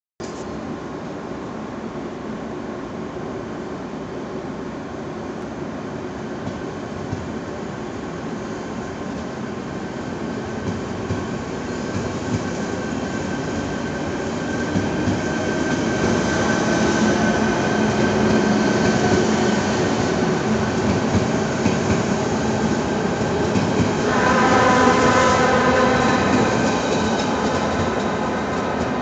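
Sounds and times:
train wheels rumbling on rails: 6.3s - 29.0s
electric train whining: 11.4s - 29.0s.

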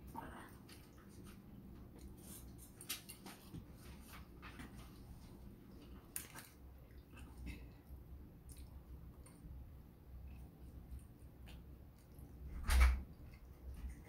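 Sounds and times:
person chewing noodles: 5.7s - 12.4s.

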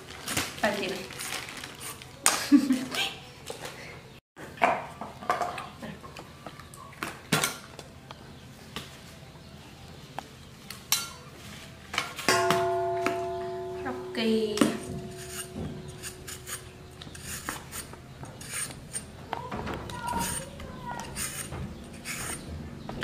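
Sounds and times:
metal bowl ringing: 12.3s - 17.0s
peeler scraping fruit: 15.0s - 19.1s, 19.9s - 22.5s.

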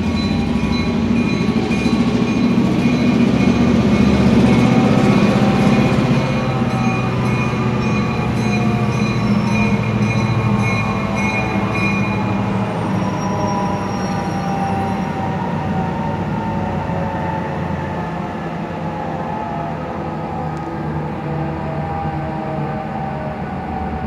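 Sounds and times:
high wheel squeals: 0.0s - 17.3s
diesel locomotive engine droning: 0.0s - 24.0s.

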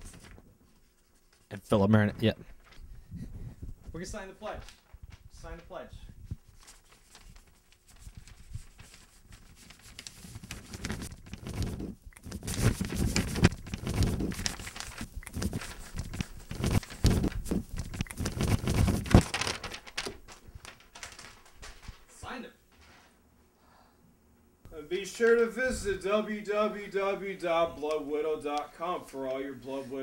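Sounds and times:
paper rustling and crinkling: 0.0s - 1.5s, 2.4s - 23.2s
handheld microphone rubbing and bumping: 2.2s - 4.0s, 6.0s - 6.6s, 8.0s - 8.9s, 10.3s - 19.2s.

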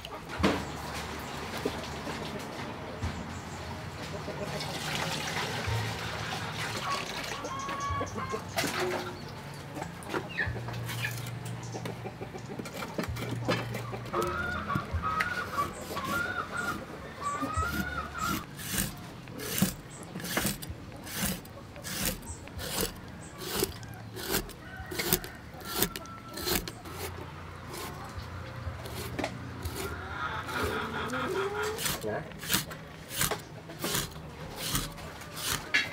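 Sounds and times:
chicken clucking: 1.6s - 5.2s, 6.5s - 35.9s
cleaver chopping on wooden board: 14.1s - 16.8s, 17.6s - 27.1s, 31.8s - 35.9s.

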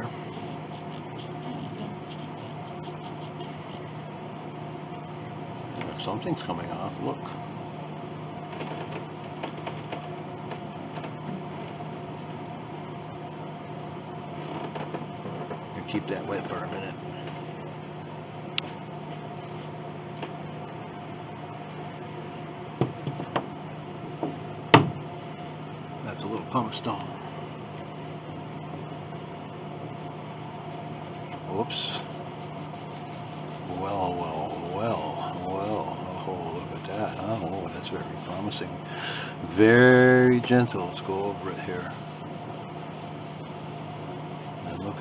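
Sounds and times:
low workshop hum: 0.0s - 45.0s
damp cloth rubbing wood: 0.2s - 4.6s, 27.5s - 45.0s.

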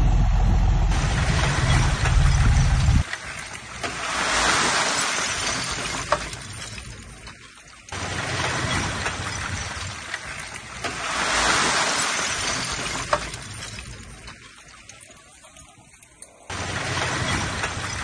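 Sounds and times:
truck engine humming: 0.0s - 3.0s
soil and rubble pouring: 0.9s - 18.0s.

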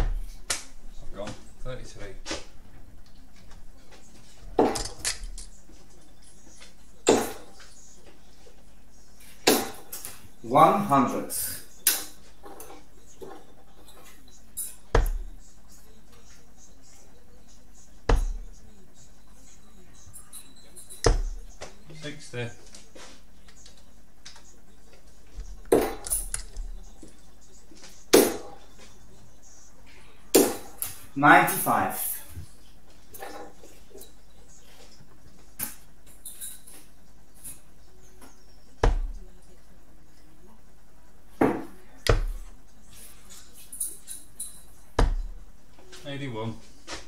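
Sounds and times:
darts thudding into dartboard: 7.0s - 7.5s, 9.4s - 10.1s, 14.9s - 15.3s, 18.1s - 18.4s, 21.0s - 21.4s, 25.7s - 26.6s, 28.1s - 28.6s, 30.4s - 31.0s, 38.8s - 39.2s, 41.4s - 42.4s, 45.0s - 45.4s.

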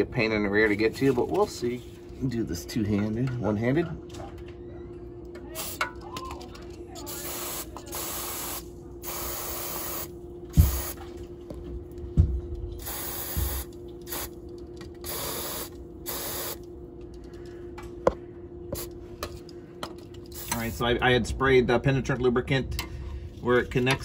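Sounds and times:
aerosol spray hissing: 7.1s - 11.0s, 12.8s - 14.3s, 15.1s - 16.6s.

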